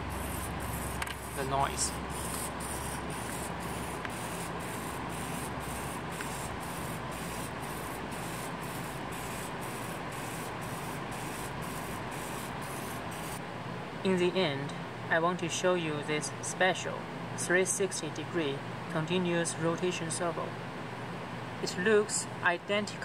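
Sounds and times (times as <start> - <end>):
servo motors whirring: 0.0 - 9.5.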